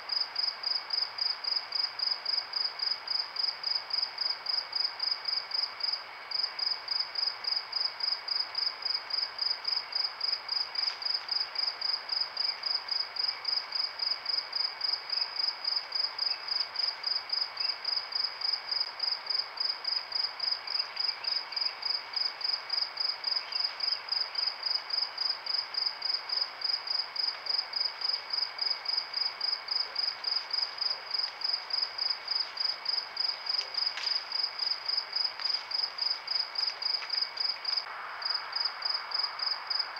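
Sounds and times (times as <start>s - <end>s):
cricket chirping: 0.0s - 39.9s
night insects hiss: 0.0s - 39.9s.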